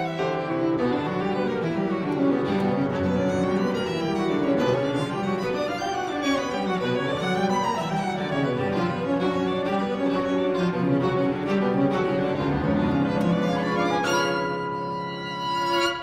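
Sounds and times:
bowed violin and cello: 0.0s - 16.0s
piano: 0.0s - 16.0s.

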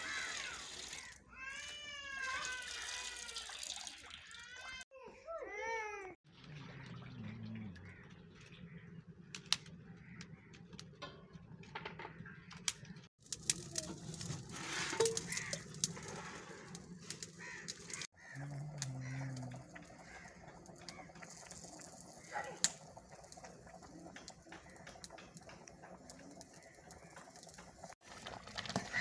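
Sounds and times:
birds calling: 6.8s - 13.1s, 14.9s - 28.0s
twigs crackling in fire: 9.2s - 10.9s, 12.7s - 29.0s.

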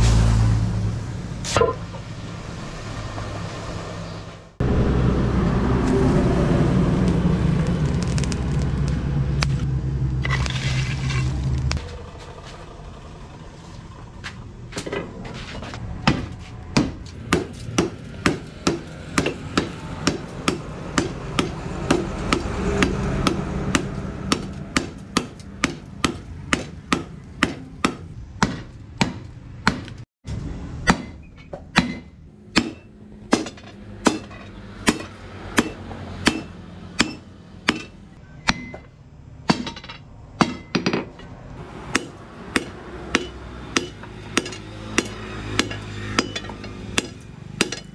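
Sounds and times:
hammer striking hot metal on anvil: 16.8s - 29.9s, 30.8s - 38.8s, 41.9s - 47.9s.

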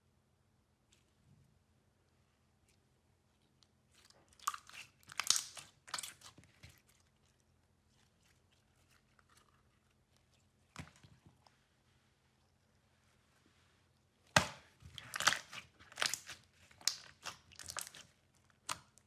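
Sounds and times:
slime squeezed with wet clicks: 4.0s - 6.8s, 14.4s - 19.0s.

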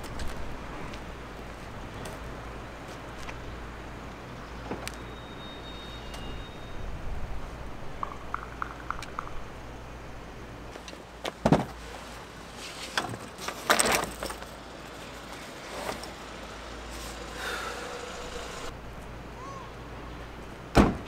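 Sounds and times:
knocks and clatter of gear: 12.8s - 16.2s
steady low hum: 14.6s - 20.6s
car door slamming: 20.7s - 21.0s.

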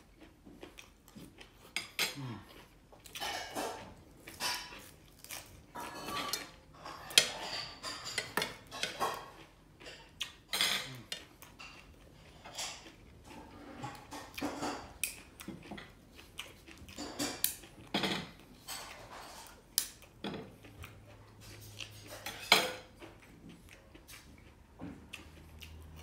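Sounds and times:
cutlery clinking on a plate: 3.1s - 4.9s, 5.7s - 13.0s, 21.5s - 23.0s.

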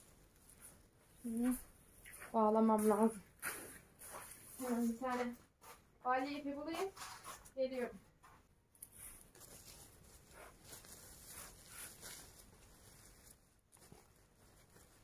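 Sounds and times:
plastic sack rustling: 8.9s - 15.0s.

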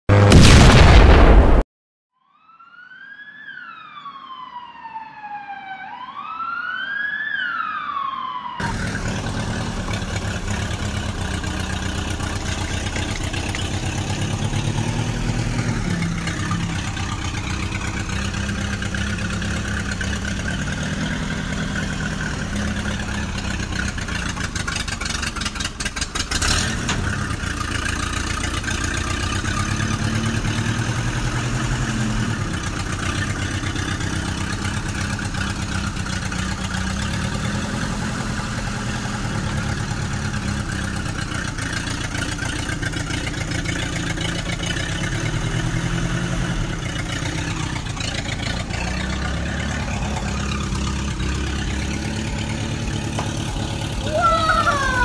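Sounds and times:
tractor engine running: 8.6s - 45.9s.

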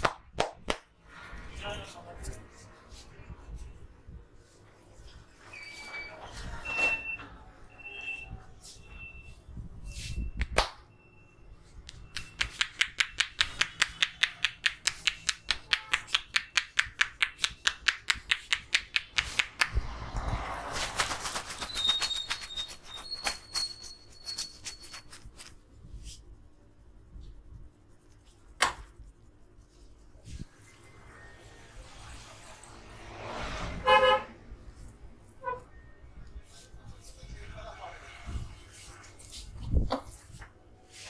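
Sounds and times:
palms tapping on head: 11.9s - 19.8s.

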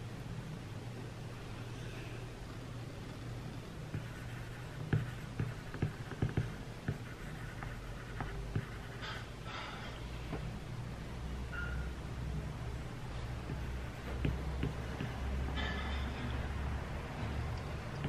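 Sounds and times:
steady low hum: 0.0s - 18.0s
stylus tapping on glass screen: 13.4s - 15.2s.

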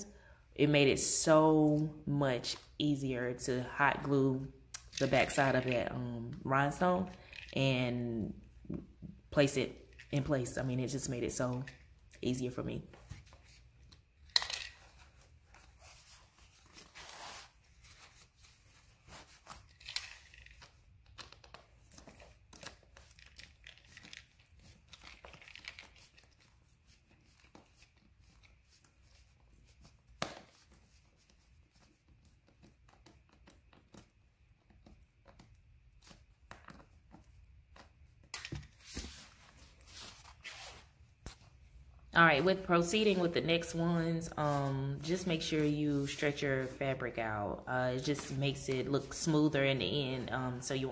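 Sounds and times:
fabric rustling: 14.8s - 20.7s, 38.8s - 41.8s.

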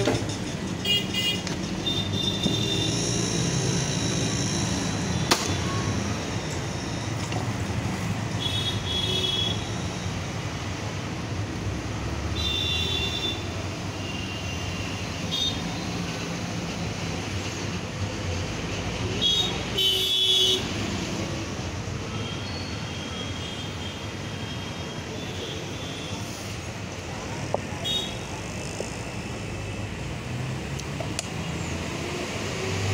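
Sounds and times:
road traffic noise: 0.0s - 32.9s.

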